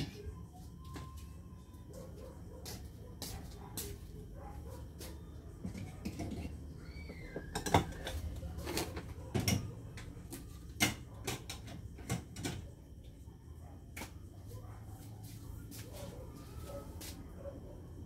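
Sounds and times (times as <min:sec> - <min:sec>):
dishes and utensils clattering: 0:05.6 - 0:06.7, 0:07.4 - 0:09.8.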